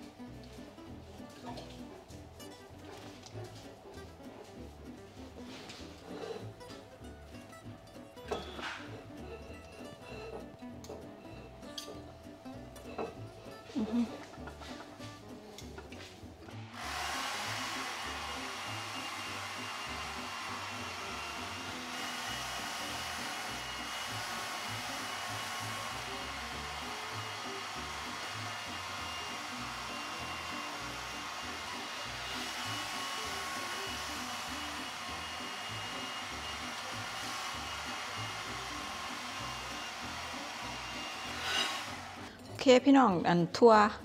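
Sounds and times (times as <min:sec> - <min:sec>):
electric carving knife whirring: 0:16.5 - 0:42.3.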